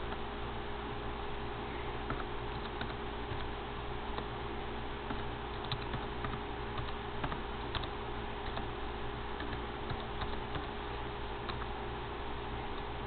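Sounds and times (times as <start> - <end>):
electrical hum: 0.0 - 13.0
keyboard keys clicking: 2.1 - 3.5, 5.1 - 8.7, 9.4 - 10.7, 11.4 - 11.7.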